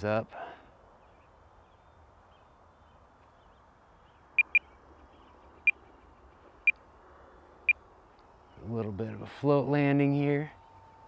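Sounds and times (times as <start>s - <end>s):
short high electronic beeps: 4.4s - 4.6s.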